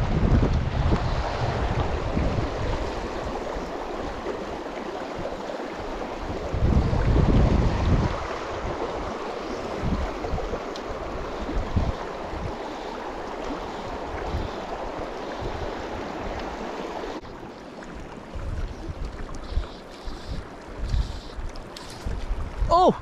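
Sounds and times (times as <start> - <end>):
wind buffeting microphone: 0.0 - 17.4
creek water running: 0.0 - 23.0.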